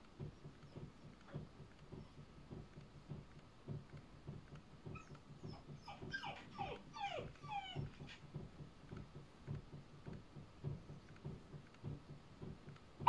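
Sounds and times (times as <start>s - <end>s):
dog whining: 4.9s - 8.3s.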